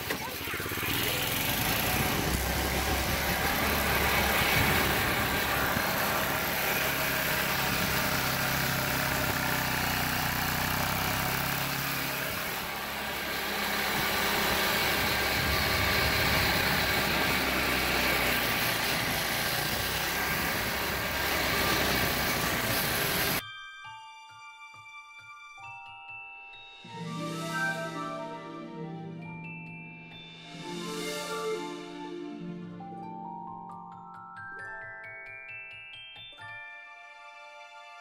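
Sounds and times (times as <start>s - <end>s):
go-kart engine running: 0.0s - 23.4s.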